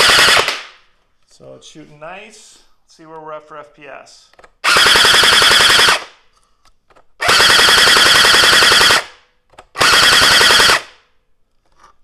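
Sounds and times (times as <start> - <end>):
gel blaster firing full auto: 0.0 - 0.7, 4.6 - 6.2, 7.2 - 11.0.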